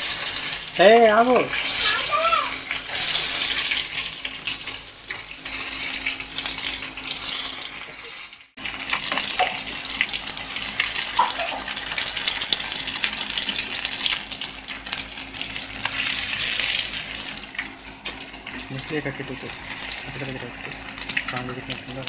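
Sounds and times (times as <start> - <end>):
fish sizzling in hot oil: 0.0 - 22.0.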